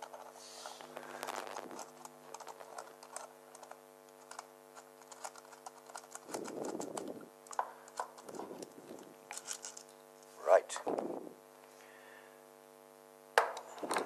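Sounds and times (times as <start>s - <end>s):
handling rustle: 0.0s - 10.0s
steady low hum: 0.0s - 14.0s.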